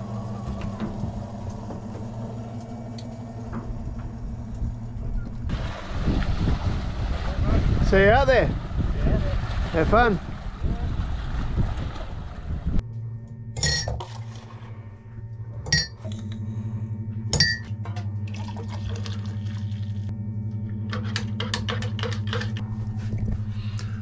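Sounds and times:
steady low hum: 0.0 - 24.0
wind noise: 3.7 - 12.8
kettle and crockery clinking: 15.7 - 16.0.

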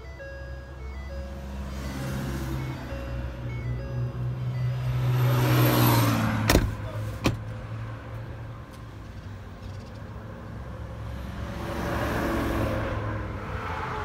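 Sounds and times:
truck door shutting: 6.4 - 7.5.

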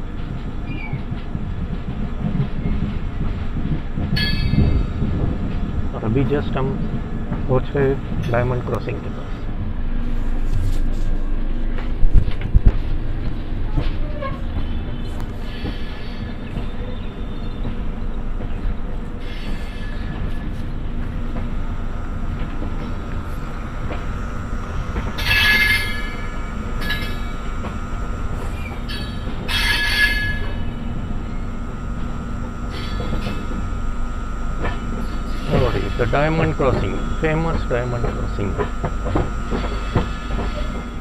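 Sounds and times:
train wheels rumbling on rails: 0.0 - 41.0
high-pitched wheel squeal: 25.2 - 27.4, 28.4 - 31.5.

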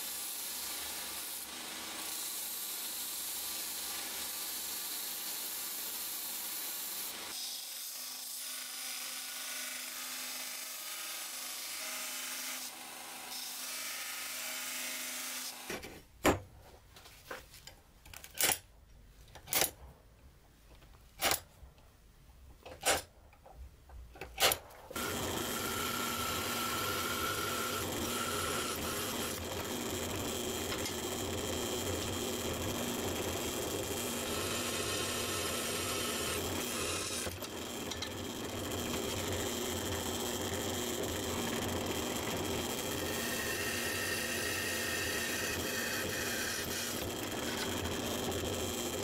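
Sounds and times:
belt grinder grinding steel: 24.4 - 49.0
drill boring through steel: 25.0 - 49.0.

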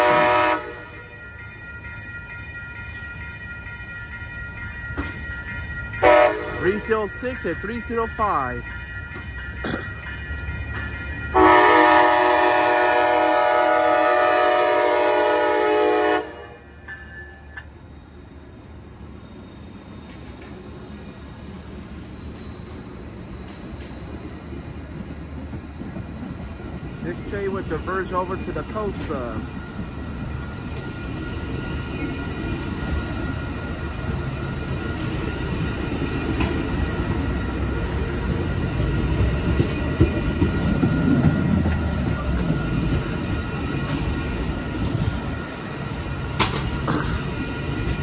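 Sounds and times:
locomotive horn chord: 0.0 - 1.1, 6.0 - 6.9, 11.3 - 16.8
train wheels rumbling on rail: 0.0 - 48.0.

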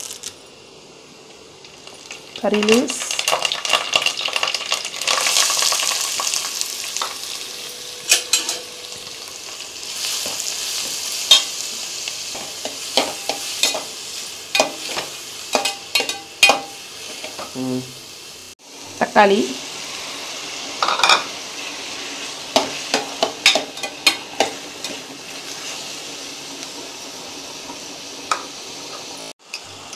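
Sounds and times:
onions sizzling in oil: 0.0 - 29.9
spoon scraping and clinking pot: 8.0 - 8.7, 14.6 - 17.5, 22.6 - 25.0.

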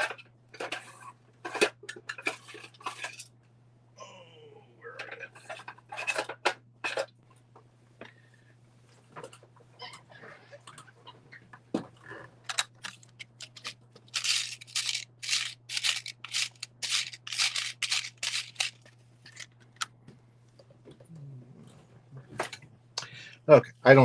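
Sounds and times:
small parts clicking and rattling: 12.5 - 19.9.

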